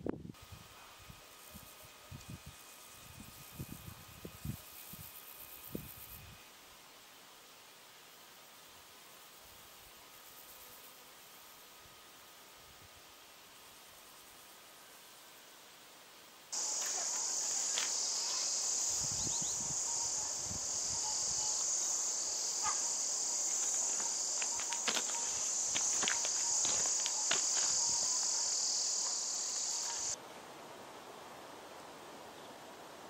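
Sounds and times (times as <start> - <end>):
insects chirring: 16.6 - 30.2.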